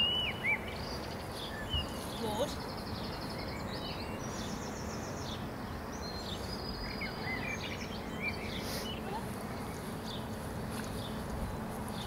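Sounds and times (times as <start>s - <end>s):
outdoor background noise: 0.0s - 12.0s
small birds singing: 0.0s - 12.0s.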